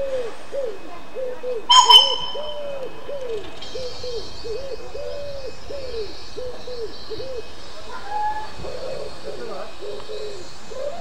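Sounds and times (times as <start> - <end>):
steam locomotive whistle toot: 1.7 - 2.8
low cooing note: 1.7 - 3.4.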